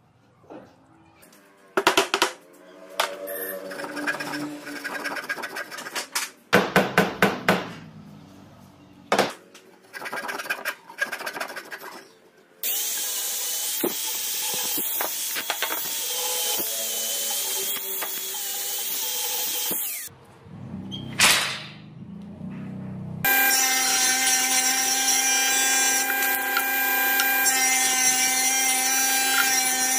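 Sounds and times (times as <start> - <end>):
angle grinder sanding wood: 23.3 - 29.9.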